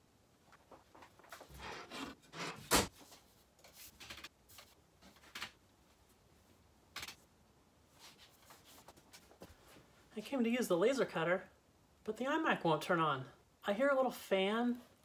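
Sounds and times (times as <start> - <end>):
knocks and rustles of handling: 0.4 - 6.2, 7.9 - 10.1.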